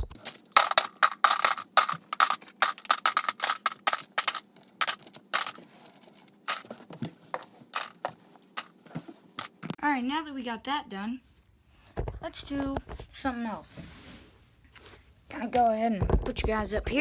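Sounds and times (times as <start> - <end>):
wooden blocks clacking: 0.0 - 8.8.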